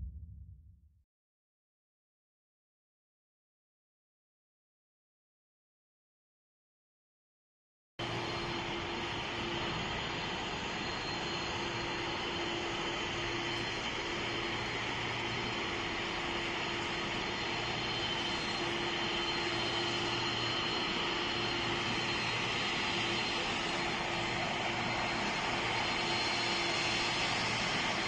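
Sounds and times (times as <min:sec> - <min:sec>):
jet plane landing: 0:08.0 - 0:28.0.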